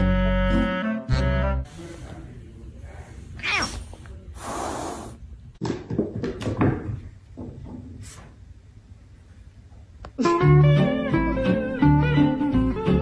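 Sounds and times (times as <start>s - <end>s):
saxophone music: 0.0s - 1.7s, 10.2s - 13.0s
cat hissing: 3.3s - 5.2s
cat crying: 3.4s - 3.8s.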